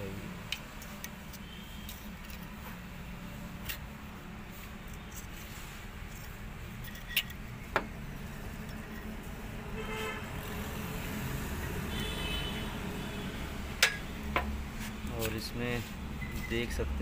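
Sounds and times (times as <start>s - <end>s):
low traffic rumble: 0.0s - 17.0s
vehicle horn toots: 9.8s - 10.3s, 11.8s - 13.4s.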